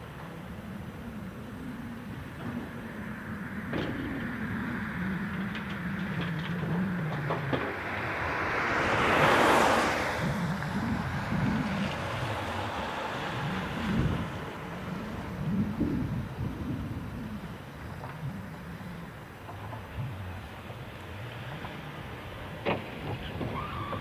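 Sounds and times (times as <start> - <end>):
heavy diesel engines running: 0.0 - 24.0
clicks and clanks: 5.3 - 7.8
loud rushing sound: 7.7 - 14.8.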